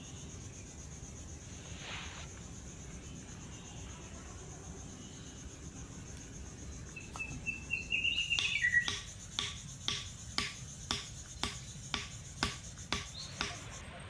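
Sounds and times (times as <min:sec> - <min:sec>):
bird chirping: 0:06.9 - 0:10.0, 0:11.2 - 0:13.9
hatchet knocking wooden stake: 0:08.4 - 0:13.6.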